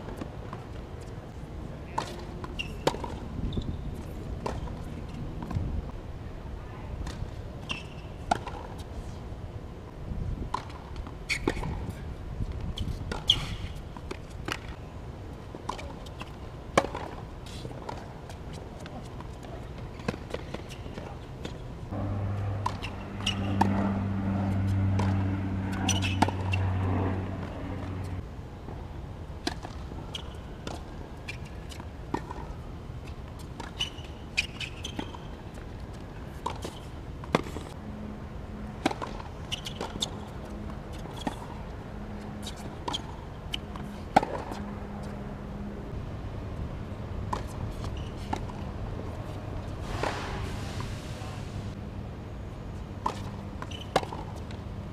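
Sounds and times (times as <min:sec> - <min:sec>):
steady low hum: 0:21.0 - 0:28.9
ball bouncing: 0:21.9 - 0:28.2
tennis racket hitting ball: 0:21.9 - 0:28.2.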